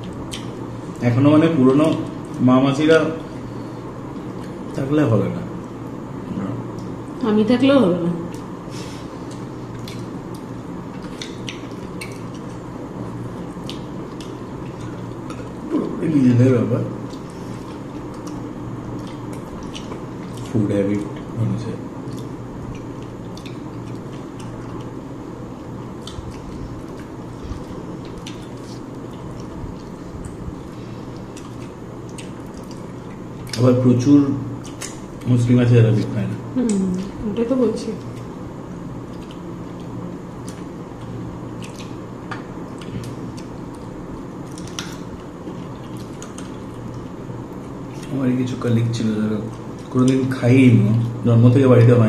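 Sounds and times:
wet squishes of chewing: 0:00.0 - 0:01.1, 0:08.3 - 0:15.7, 0:17.0 - 0:21.4, 0:22.0 - 0:33.7, 0:34.5 - 0:35.3, 0:39.0 - 0:48.2
steady low hum: 0:00.0 - 0:52.0.

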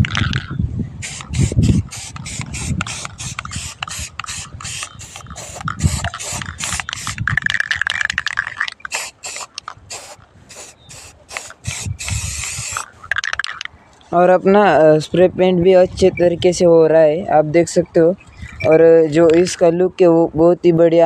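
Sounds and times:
spray paint can hissing: 0:01.0 - 0:13.6.

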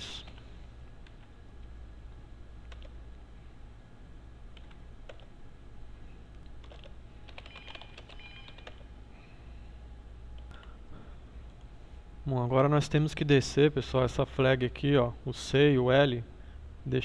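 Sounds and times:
steady low hum: 0:00.0 - 0:17.0
keyboard typing: 0:02.6 - 0:03.0, 0:04.5 - 0:05.3, 0:06.5 - 0:08.9.

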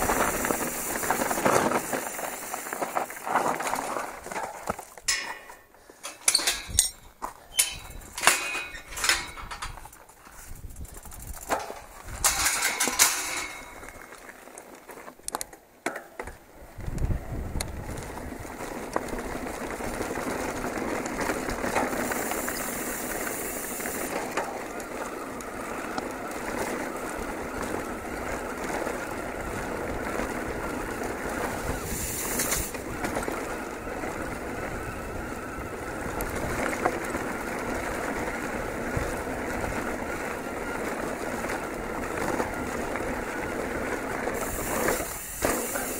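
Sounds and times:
bike tyres rattling over stones: 0:00.0 - 0:45.9
metal gate latch clanking: 0:05.1 - 0:09.8.

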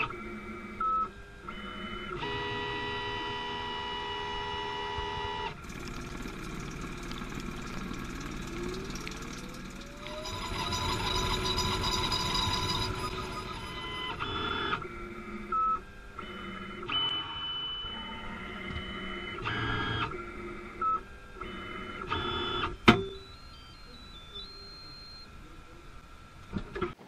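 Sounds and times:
milling machine spindle whining: 0:05.6 - 0:15.4.

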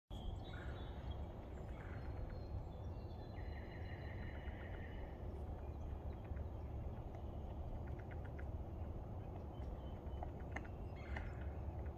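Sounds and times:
songbirds singing: 0:00.1 - 0:11.9
wind rumble on microphone: 0:00.2 - 0:11.9
woodpecker pecking at log: 0:05.9 - 0:11.9.

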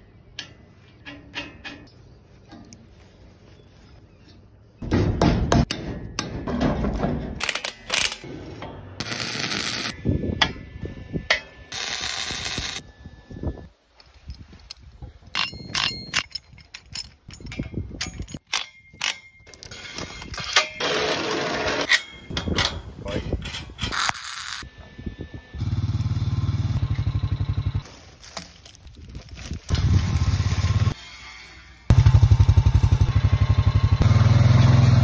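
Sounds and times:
steel clanks and ringing knocks: 0:04.8 - 0:07.4.

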